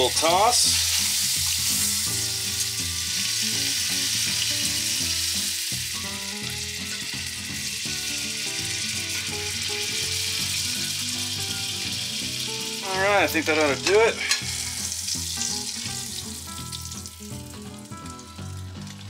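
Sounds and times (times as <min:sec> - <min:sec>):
food frying in butter: 0:00.0 - 0:19.0.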